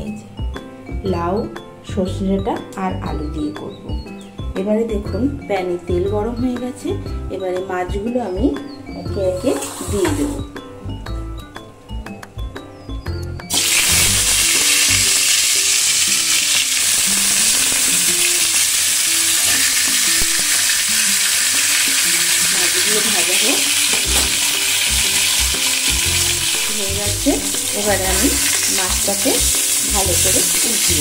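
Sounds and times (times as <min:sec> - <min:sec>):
fish sizzling in hot oil: 0:13.5 - 0:31.0.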